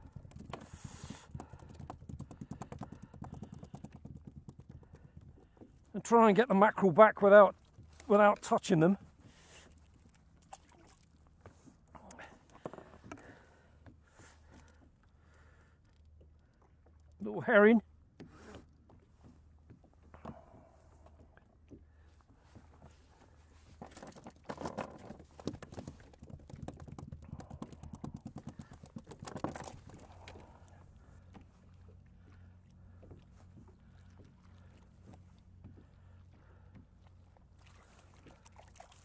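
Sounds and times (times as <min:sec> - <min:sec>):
fishing tackle knocking and rattling: 0:00.0 - 0:00.7, 0:01.3 - 0:05.6, 0:23.8 - 0:30.6
rapid ticks: 0:01.3 - 0:04.9, 0:25.5 - 0:30.0.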